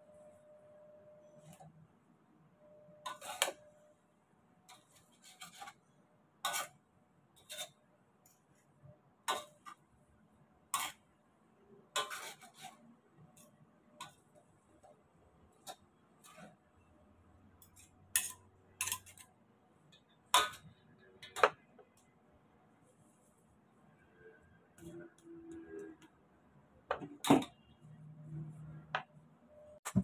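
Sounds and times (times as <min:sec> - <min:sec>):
metal tongs clacking on a wok: 0:17.6 - 0:19.3.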